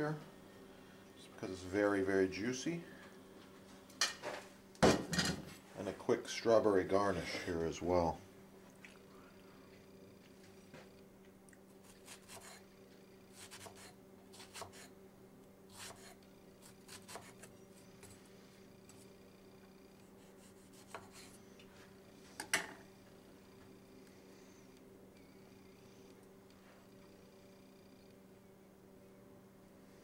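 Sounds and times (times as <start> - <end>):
faint steady hum: 0.0 - 30.0
knife slicing on cutting board: 13.4 - 14.9, 15.7 - 17.5.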